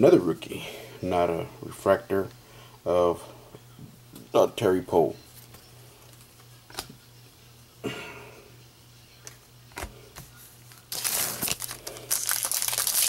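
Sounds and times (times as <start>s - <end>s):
foil wrapper crinkling: 10.7s - 13.0s.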